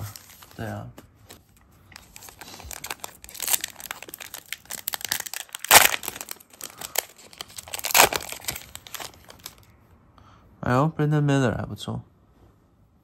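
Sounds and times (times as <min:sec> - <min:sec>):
foil wrapper crinkling: 0:02.0 - 0:09.7
wrapper torn open: 0:02.0 - 0:09.7.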